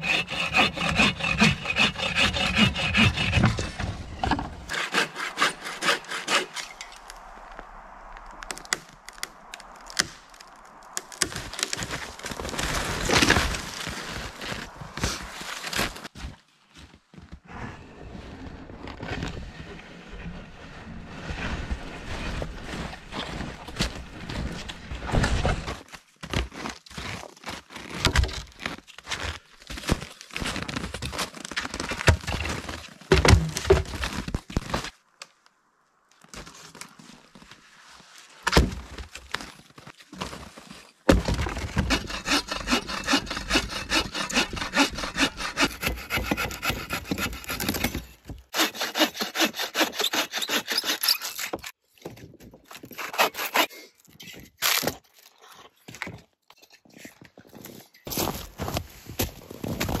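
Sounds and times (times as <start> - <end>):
bow saw cutting a log: 0.0 - 7.3, 41.4 - 51.8, 52.8 - 53.7
trees cracking and crunching: 0.1 - 16.9, 22.2 - 35.4.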